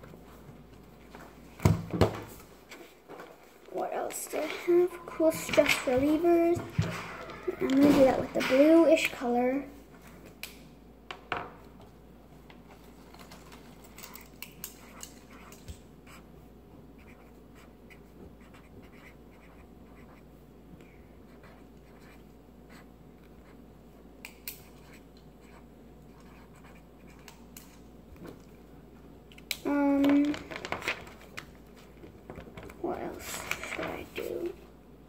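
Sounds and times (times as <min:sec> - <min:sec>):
marker writing on paper: 0:14.8 - 0:16.3, 0:17.0 - 0:20.3, 0:21.2 - 0:23.6, 0:24.6 - 0:27.4.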